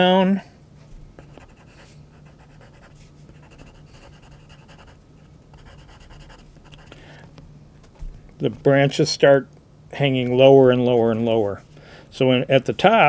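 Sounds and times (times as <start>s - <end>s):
pencil scratching on paper: 1.2s - 5.0s, 5.6s - 7.0s.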